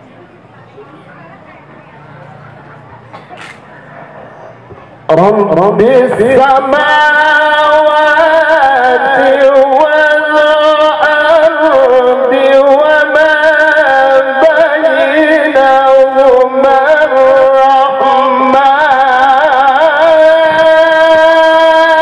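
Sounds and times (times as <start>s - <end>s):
man chanting melodically: 5.0s - 22.0s.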